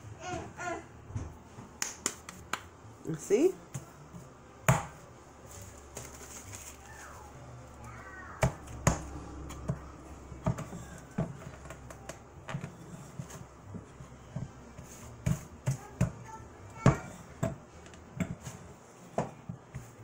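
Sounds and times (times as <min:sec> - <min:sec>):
hands patting dough flat: 0:01.5 - 0:02.8, 0:08.4 - 0:20.0.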